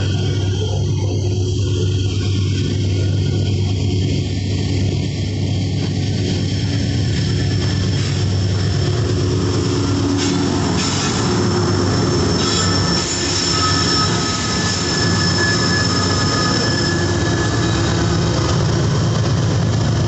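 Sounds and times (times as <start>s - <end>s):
steel wheels rumbling on rail: 0.0s - 20.0s
wheel squeal: 7.8s - 19.0s.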